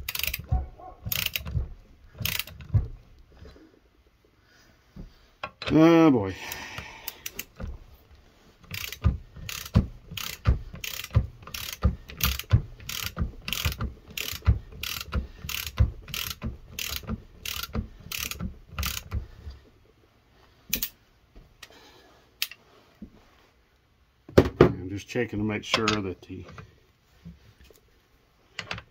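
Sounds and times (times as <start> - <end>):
hand ratchet clicking: 0.0 - 3.0, 6.4 - 7.7, 8.6 - 19.3, 20.7 - 21.0.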